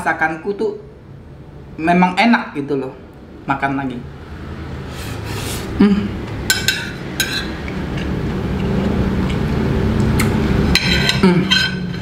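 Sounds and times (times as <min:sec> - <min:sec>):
spoon clinking against plate: 0:06.5 - 0:07.6, 0:10.7 - 0:12.0.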